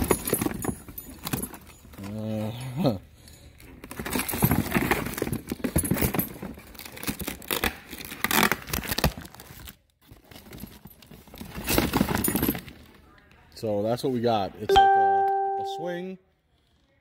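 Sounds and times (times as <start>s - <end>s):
packaging crinkling and rustling: 3.8s - 12.9s.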